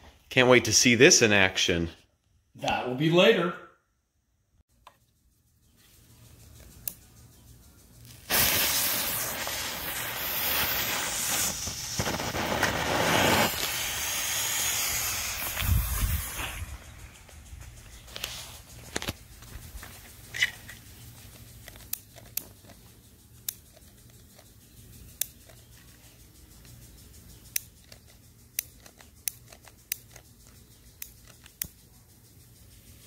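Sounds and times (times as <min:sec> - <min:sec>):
smoke bombs sputtering and hissing: 0:07.9 - 0:21.9
sharp clicks and crackles: 0:14.6 - 0:31.9.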